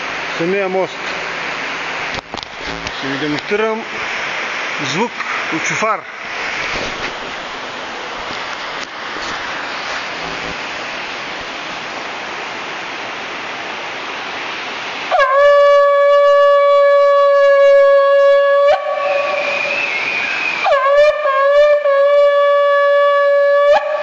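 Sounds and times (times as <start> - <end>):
steady rushing noise: 0.0 - 15.2
shofar blast: 15.1 - 24.0.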